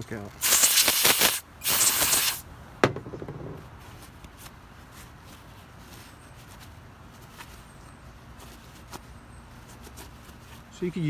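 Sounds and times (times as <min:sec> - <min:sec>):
aerosol spray hissing: 0:00.4 - 0:02.4.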